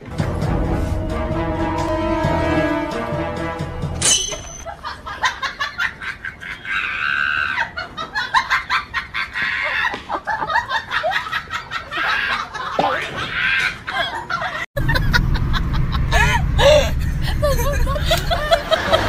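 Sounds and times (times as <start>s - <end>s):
background music: 0.0s - 4.6s.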